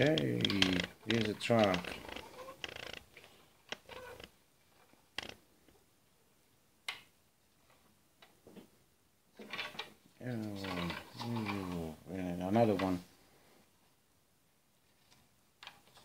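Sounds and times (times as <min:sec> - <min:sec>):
toy scraping on glass: 0:00.0 - 0:03.0.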